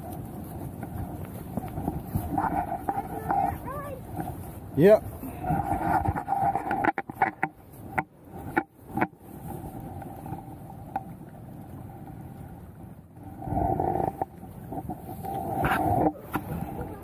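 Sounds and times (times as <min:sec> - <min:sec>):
knocks and rubbing on camera: 0:00.7 - 0:04.3, 0:05.4 - 0:09.2.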